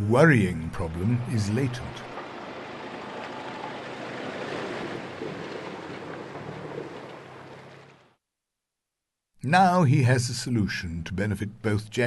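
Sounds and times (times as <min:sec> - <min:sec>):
truck engine humming: 0:00.2 - 0:08.2
water splashing around wheels: 0:00.8 - 0:08.2.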